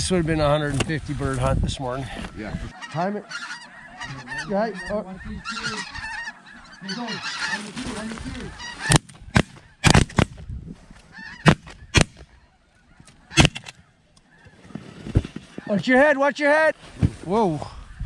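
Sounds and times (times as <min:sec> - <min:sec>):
geese honking: 0:01.8 - 0:10.3, 0:11.0 - 0:16.6
shotgun blasts: 0:11.4 - 0:12.2, 0:13.4 - 0:13.7.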